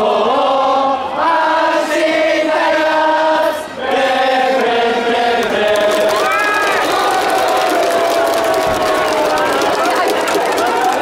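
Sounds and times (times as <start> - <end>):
stadium crowd singing: 0.0 - 8.8.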